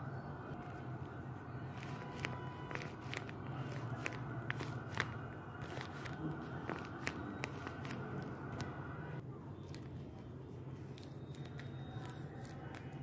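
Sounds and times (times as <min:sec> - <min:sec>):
paper crinkling when squeezed: 0:01.7 - 0:08.7.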